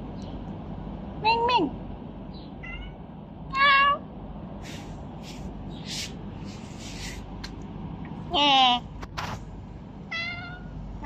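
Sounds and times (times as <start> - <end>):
cat meowing: 2.6 - 4.0, 10.1 - 10.7.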